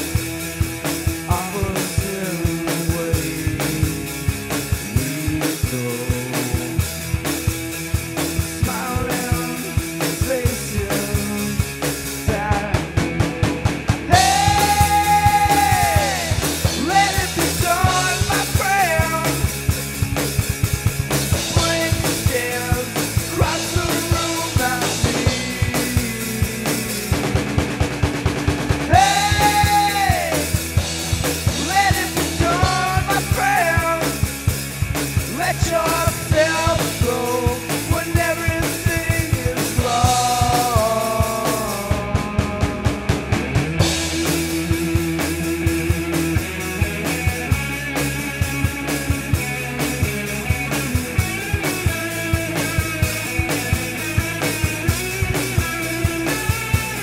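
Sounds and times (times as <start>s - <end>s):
drum kit beat: 0.0s - 57.0s
rock band music: 0.0s - 57.0s
electric guitar bending pitch: 13.0s - 26.2s.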